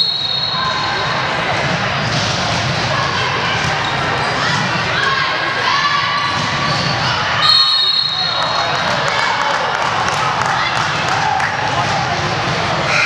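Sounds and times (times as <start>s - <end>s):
referee's whistle: 0.0s - 0.8s, 7.4s - 8.6s
crowd noise: 0.0s - 13.0s.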